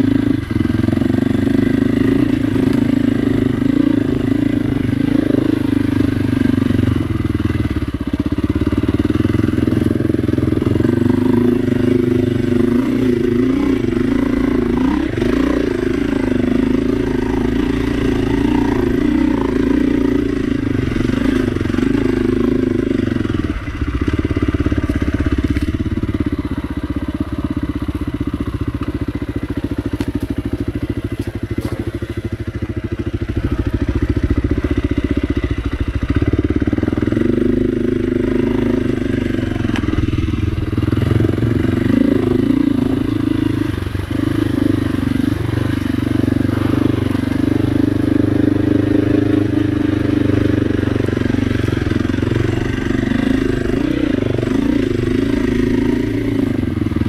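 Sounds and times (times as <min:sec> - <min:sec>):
dirt bike engine running: 0:00.0 - 0:57.0.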